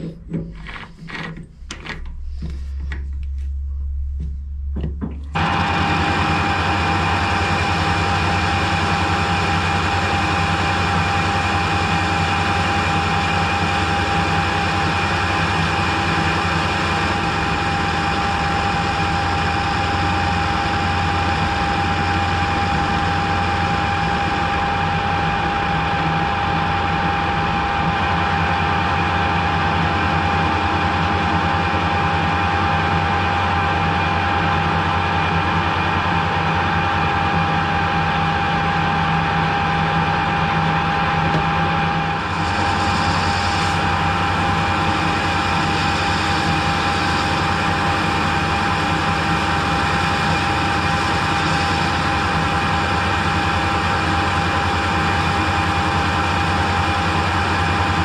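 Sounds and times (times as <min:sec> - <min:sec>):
lathe gear whine: 0:00.0 - 0:03.2, 0:04.8 - 0:58.0
lathe motor hum: 0:00.0 - 0:03.5, 0:04.2 - 0:31.9, 0:32.5 - 0:58.0.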